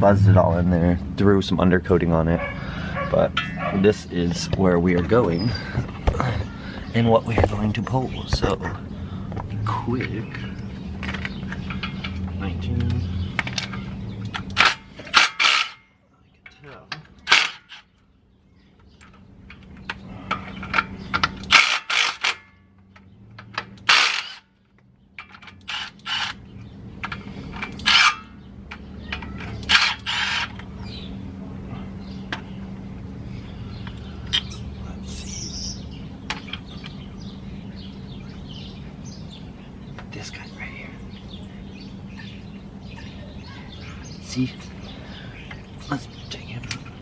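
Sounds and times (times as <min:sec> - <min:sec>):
steady low hum: 0:00.0 - 0:47.0
hand tools clanking on metal: 0:13.4 - 0:17.8, 0:27.0 - 0:30.6.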